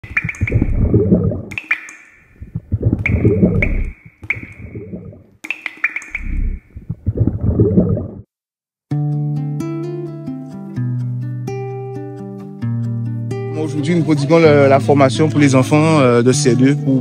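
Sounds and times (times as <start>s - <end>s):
ringing drip plinks: 0.0s - 6.6s
liquid splashing: 0.0s - 8.3s.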